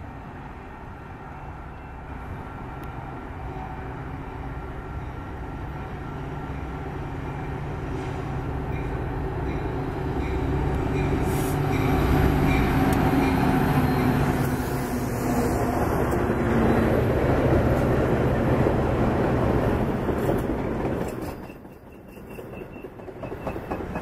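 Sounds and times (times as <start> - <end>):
diesel locomotive droning: 0.0 - 21.1.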